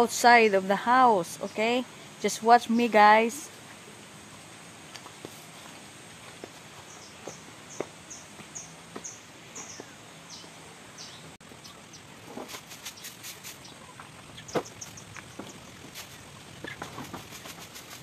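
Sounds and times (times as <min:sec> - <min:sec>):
bird chirping: 0:06.8 - 0:12.2, 0:12.9 - 0:17.6.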